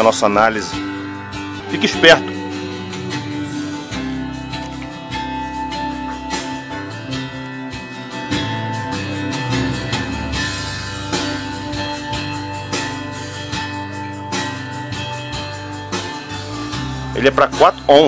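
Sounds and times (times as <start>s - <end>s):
guitar music through amplifier: 0.0s - 18.0s.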